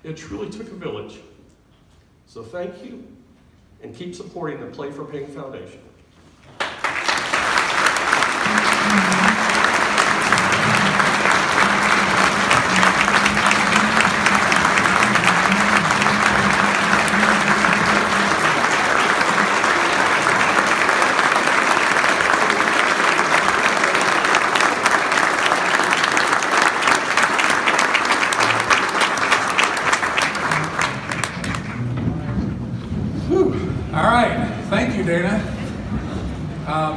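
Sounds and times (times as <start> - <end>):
crowd applauding: 6.6 - 32.6.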